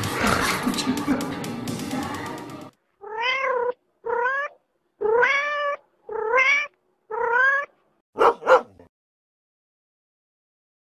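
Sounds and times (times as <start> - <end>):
cat meowing: 3.0 - 7.8.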